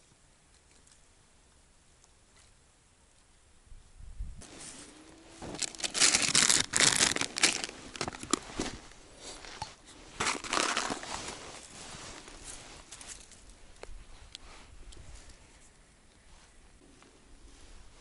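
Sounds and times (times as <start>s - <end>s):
plastic packaging crinkling: 5.4s - 8.8s, 10.2s - 11.7s.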